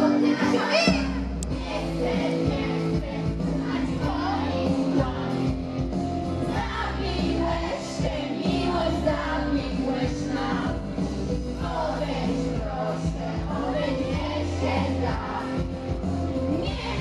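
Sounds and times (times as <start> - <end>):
backing track with bass line: 0.0 - 17.0
women singing into microphones: 6.5 - 10.8, 11.6 - 15.7.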